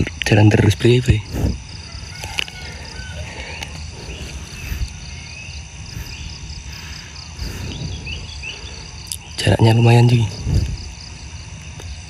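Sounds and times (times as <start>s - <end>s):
insects chirping: 0.0s - 12.0s
low rumble: 3.8s - 9.3s.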